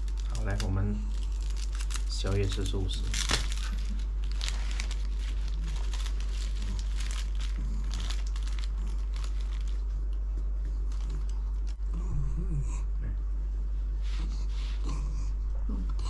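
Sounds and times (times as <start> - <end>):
plastic packaging crinkling: 0.0 - 11.8
steady low hum: 0.0 - 16.0.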